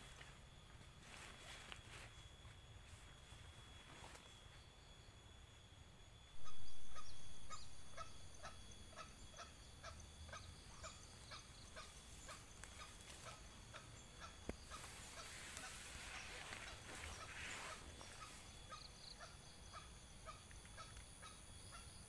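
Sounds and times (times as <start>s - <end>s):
junglefowl clucking call: 6.4s - 22.0s.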